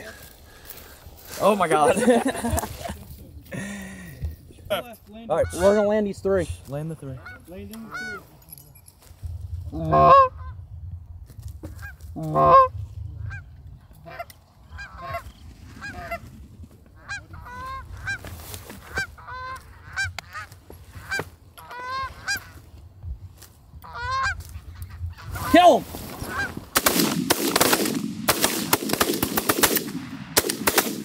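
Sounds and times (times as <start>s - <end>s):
goose honks and clucks: 5.3s - 6.0s, 7.0s - 8.3s, 9.8s - 10.5s, 11.7s - 15.2s, 17.0s - 22.6s, 23.8s - 26.5s.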